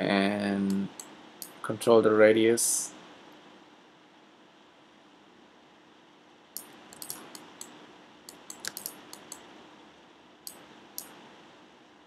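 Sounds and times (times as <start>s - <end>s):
faint room hiss: 0.0s - 12.0s
keyboard and mouse clicks: 6.6s - 9.4s, 10.4s - 11.2s.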